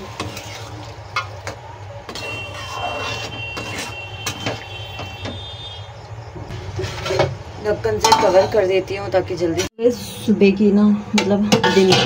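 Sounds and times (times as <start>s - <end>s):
metal spatula scraping a pan: 0.0s - 1.3s, 2.1s - 5.4s, 6.5s - 8.7s, 11.5s - 12.0s.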